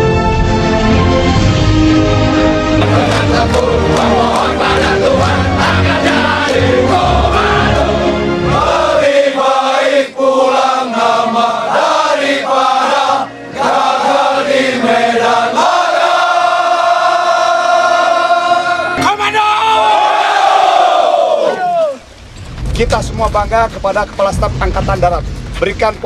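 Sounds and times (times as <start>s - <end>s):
choir singing: 0.9s - 19.1s
heavy low beat: 1.3s - 8.0s, 22.5s - 26.0s.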